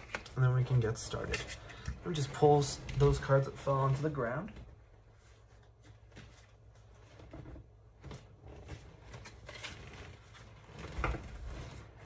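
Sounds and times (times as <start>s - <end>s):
cards rustling: 0.0s - 4.1s.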